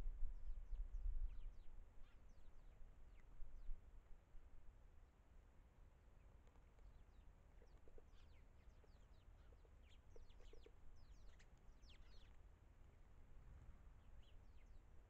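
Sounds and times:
small birds calling: 0:07.6 - 0:13.0.

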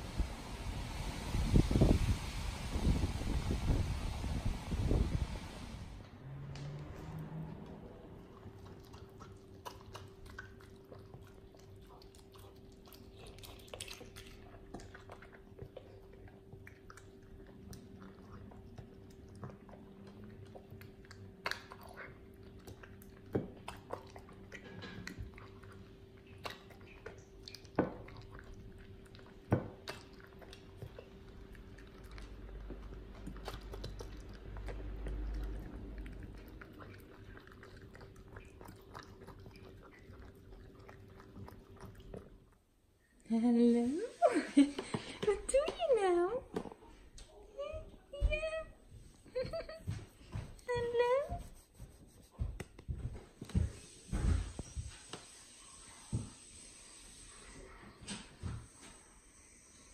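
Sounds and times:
dog chewing and licking: 0:06.7 - 0:42.7.

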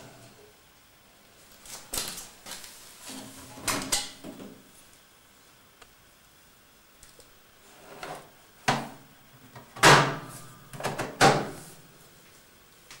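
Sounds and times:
washing machine door clunks: 0:09.8 - 0:10.2, 0:10.8 - 0:11.6.

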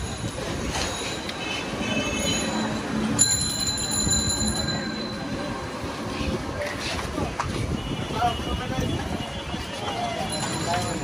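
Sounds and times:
street background noise: 0:00.0 - 0:11.0
high ringing tone: 0:02.1 - 0:05.6.

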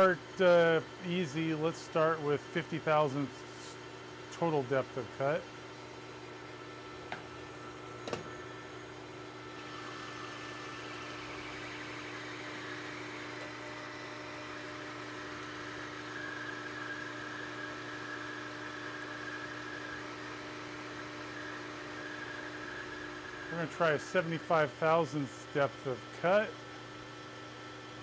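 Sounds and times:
lathe motor hum: 0:00.0 - 0:27.9
lathe cutting hiss: 0:09.7 - 0:25.1.

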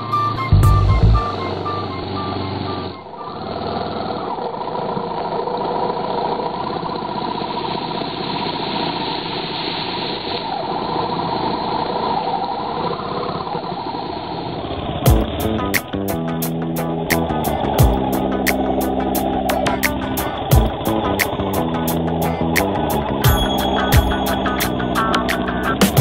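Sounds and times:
background music: 0:00.0 - 0:02.4, 0:15.1 - 0:26.0
motorcycle engine running: 0:15.1 - 0:26.0.

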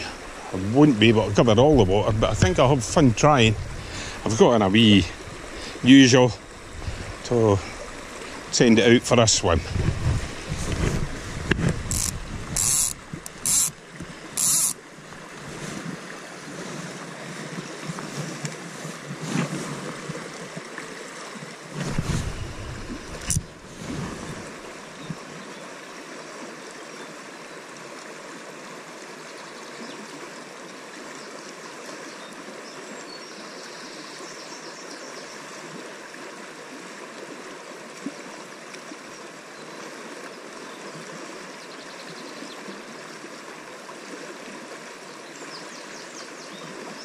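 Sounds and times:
river rushing over stones: 0:00.0 - 0:26.6.

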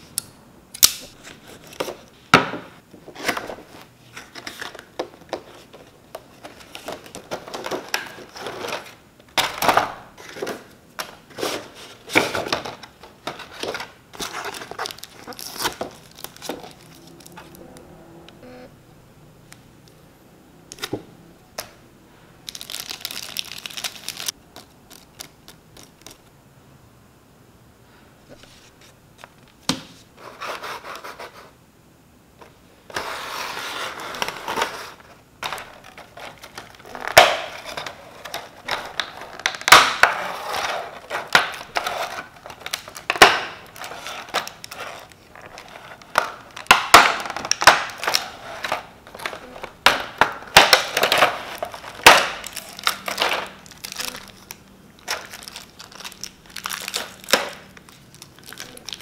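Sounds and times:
plastic crinkling: 0:03.2 - 0:17.6, 0:22.4 - 0:26.3, 0:33.9 - 0:59.0.

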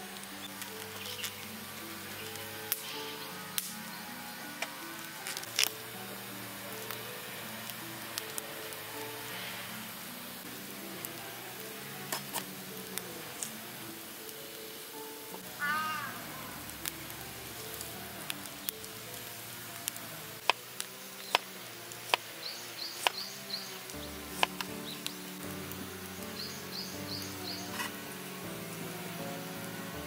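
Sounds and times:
garlic peeling crackles: 0:00.0 - 0:30.0
soft background music: 0:00.0 - 0:30.0
bird chirping: 0:22.4 - 0:25.4, 0:26.1 - 0:27.8.

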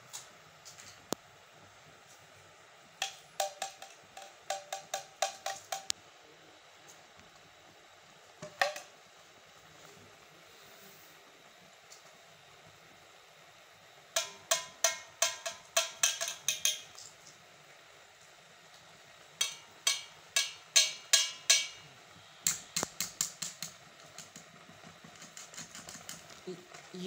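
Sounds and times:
metal utensil tapping steel pot: 0:03.0 - 0:06.0, 0:14.2 - 0:17.0, 0:19.4 - 0:21.9.

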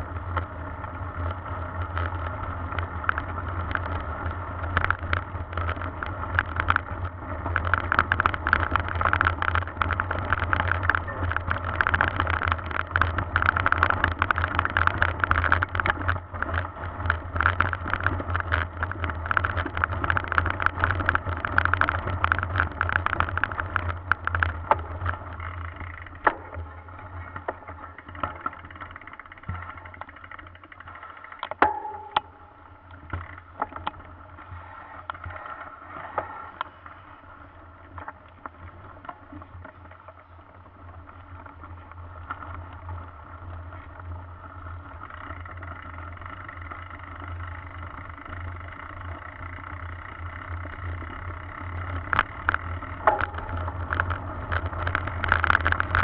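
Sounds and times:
bike rattling over bumps: 0:00.0 - 0:56.0
low rumble: 0:23.0 - 0:30.0, 0:31.6 - 0:37.4, 0:52.6 - 0:56.0
knocks: 0:31.6 - 0:32.8.

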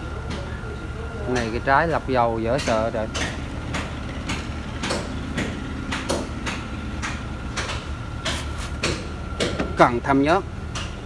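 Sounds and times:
low workshop hum: 0:00.0 - 0:11.0
sharp knocks and clanks: 0:02.3 - 0:10.0.

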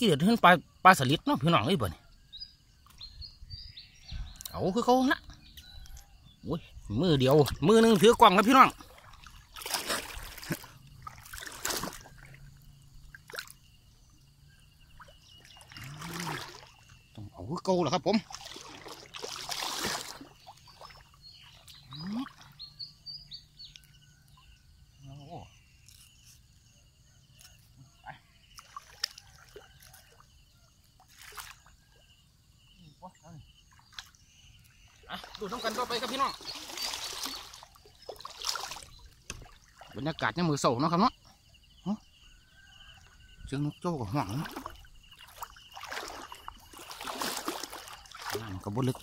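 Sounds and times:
water trickling: 0:04.2 - 0:24.3, 0:28.5 - 0:31.9, 0:33.4 - 0:49.0
water splashing: 0:07.0 - 0:22.8, 0:33.6 - 0:40.7, 0:43.5 - 0:49.0.

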